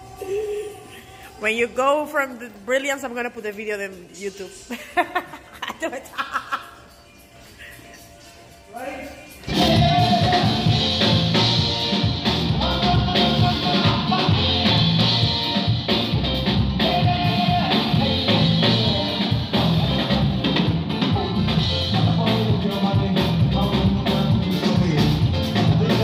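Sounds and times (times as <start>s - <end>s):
person singing: 0.0s - 1.4s, 9.4s - 15.6s, 16.7s - 26.0s
keyboards: 4.9s - 26.0s
drum kit: 9.4s - 26.0s.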